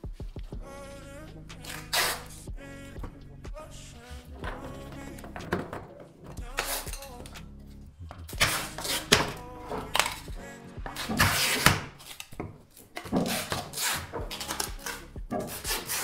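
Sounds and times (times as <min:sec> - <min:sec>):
background music: 0:00.0 - 0:16.0
hand tool scraping wood: 0:01.7 - 0:02.3, 0:04.0 - 0:07.4, 0:08.1 - 0:10.3, 0:10.9 - 0:16.0.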